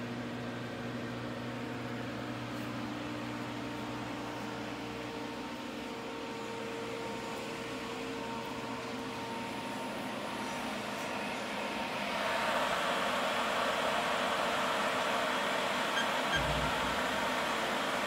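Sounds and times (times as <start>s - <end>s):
cooling fans humming: 0.0s - 18.0s.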